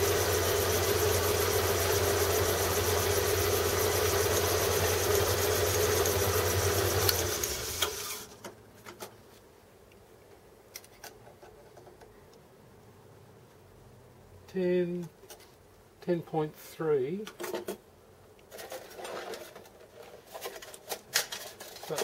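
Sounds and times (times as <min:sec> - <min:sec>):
metal lathe humming: 0:00.0 - 0:08.2.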